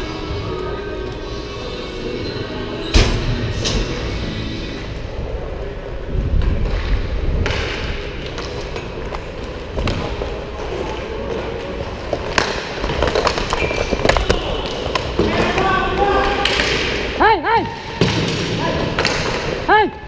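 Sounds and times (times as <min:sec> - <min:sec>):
skate wheels rumbling on tiles: 0:06.1 - 0:16.8
hockey sticks clacking: 0:06.6 - 0:17.1, 0:18.0 - 0:19.7.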